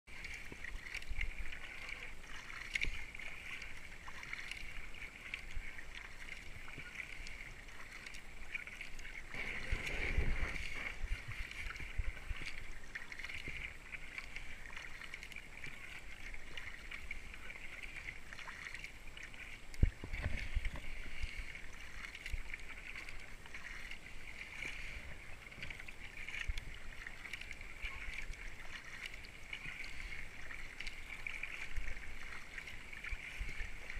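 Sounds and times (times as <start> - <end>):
paddle blades splashing: 0.1 - 33.9
water rushing along hull: 0.1 - 33.9.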